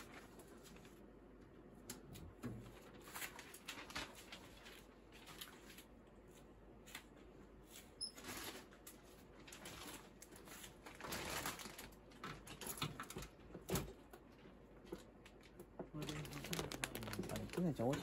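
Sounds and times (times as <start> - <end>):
bird wings fluttering: 16.2 - 17.7.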